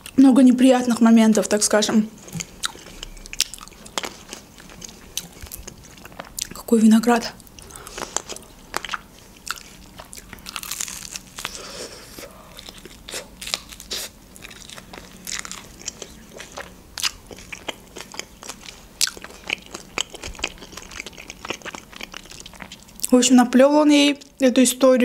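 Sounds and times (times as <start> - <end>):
biting and chewing sandwich: 7.4 - 23.1
crusty bread crunching: 7.4 - 23.1.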